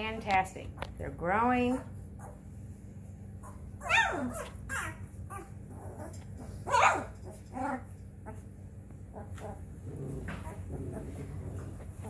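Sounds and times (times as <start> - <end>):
puppy squeaks: 3.4 - 5.6
puppies crying: 3.4 - 8.4.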